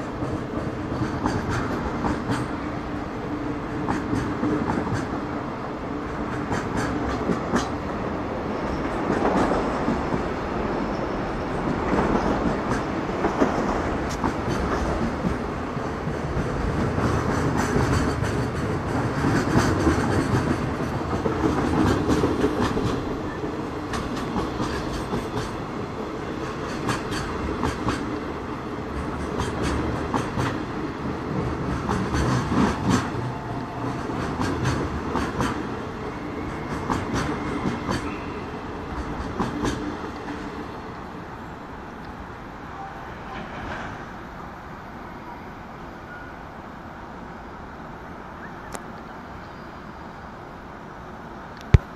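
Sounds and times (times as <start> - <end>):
train wheels clicking over rail joints: 0.0 - 2.7, 3.6 - 5.3, 6.1 - 7.8, 8.6 - 10.3, 11.6 - 38.3, 38.9 - 40.6
freight train rumble: 0.0 - 51.9.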